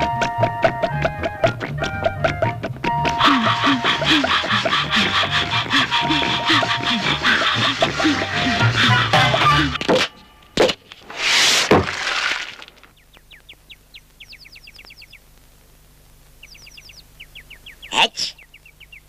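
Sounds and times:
sharp crack: 9.8 - 14.2.

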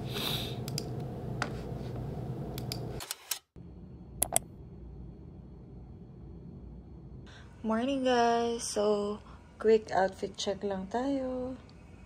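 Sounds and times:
low room hum: 0.0 - 3.0, 3.6 - 12.0
laptop keys and trackpad clicking: 4.2 - 4.4
sharp clicks: 4.2 - 4.4.

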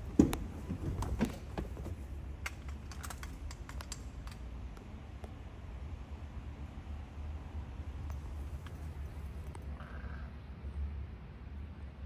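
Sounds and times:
light clicks and knocks: 0.0 - 4.4
steady low hum: 0.0 - 12.0.

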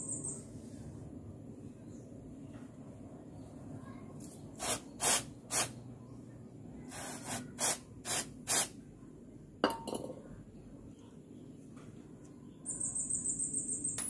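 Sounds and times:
aerosol spray bursts: 4.5 - 5.8, 6.9 - 8.8.

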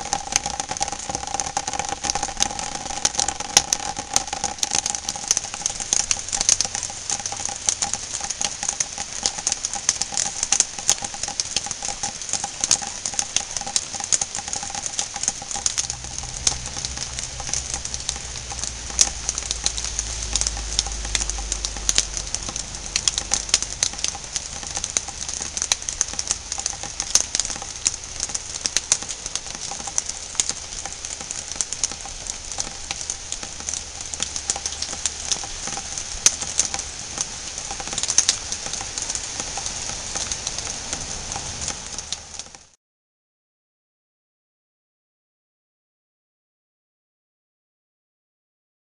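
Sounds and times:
rain pattering on a covering: 0.0 - 42.8
low rumble: 15.7 - 26.1.

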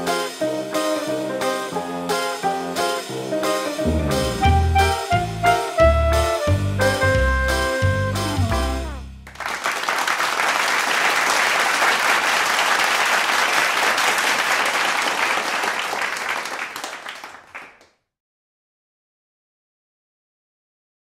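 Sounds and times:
crowd applauding: 9.2 - 17.9.

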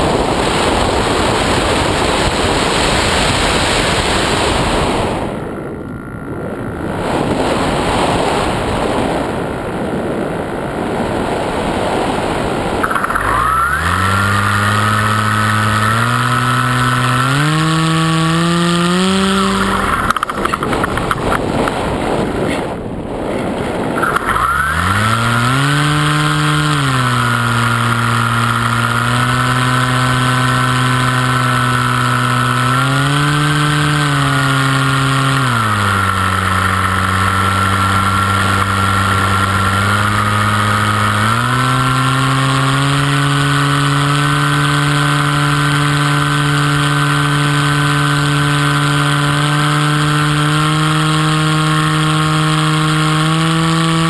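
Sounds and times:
wind on microphone: 0.0 - 41.3
propeller motor droning: 0.0 - 54.0.

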